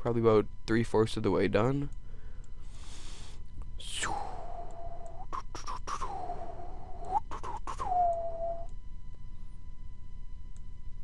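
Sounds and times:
person whistling long notes: 6.3s - 8.7s.

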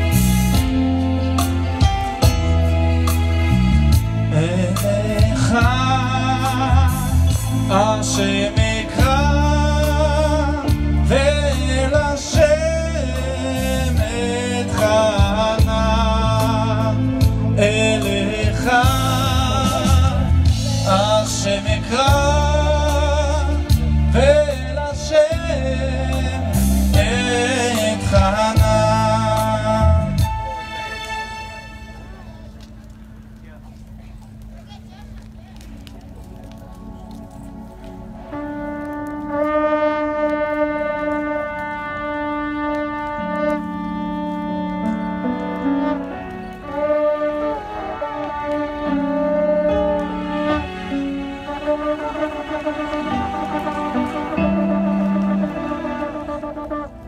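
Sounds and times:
ceremonial horns blowing long notes: 0.0s - 33.4s, 36.1s - 57.0s
low accompaniment chords: 0.0s - 57.0s
person singing with vibrato: 4.3s - 30.5s.

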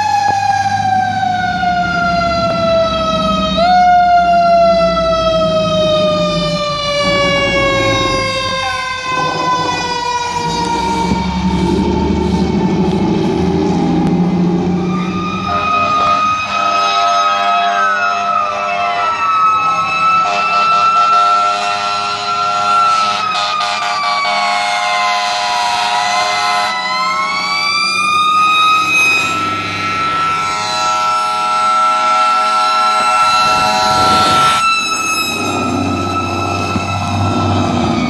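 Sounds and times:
fire truck sirens: 0.0s - 38.0s
air horn blasts: 6.9s - 9.9s, 15.4s - 26.8s, 28.9s - 37.4s.

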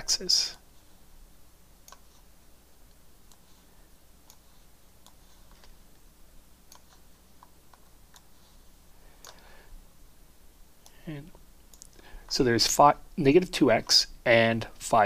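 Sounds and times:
computer mouse clicking: 1.8s - 2.1s, 4.2s - 5.7s, 6.7s - 8.3s, 9.2s - 9.4s.

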